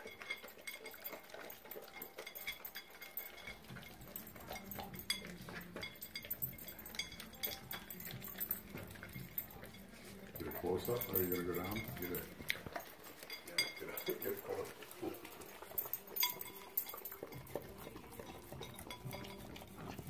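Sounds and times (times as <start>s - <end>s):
dishes clinking: 0.0s - 20.0s
dogs licking and chewing: 0.0s - 20.0s.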